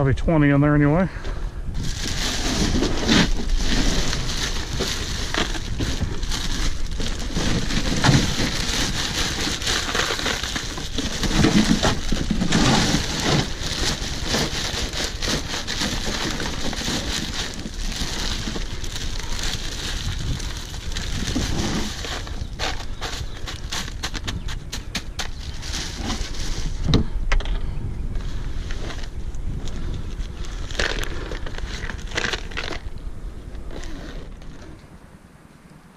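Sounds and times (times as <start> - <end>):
plastic bag crinkling: 1.8 - 24.5
crushed ice crunching and rattling: 1.8 - 26.9, 28.6 - 33.0.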